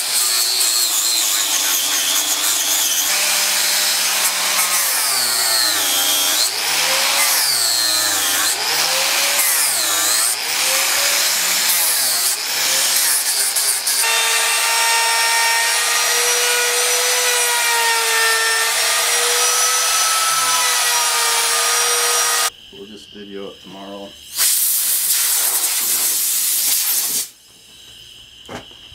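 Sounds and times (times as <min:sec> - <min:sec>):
angle grinder sanding wood: 0:00.0 - 0:22.5
power tool whining steadily: 0:00.0 - 0:22.5.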